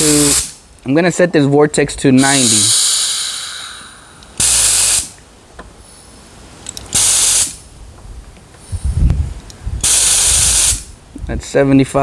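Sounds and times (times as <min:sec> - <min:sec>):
compressed air blasts: 0:00.0 - 0:00.7, 0:02.2 - 0:06.2, 0:06.8 - 0:07.7, 0:08.6 - 0:11.0.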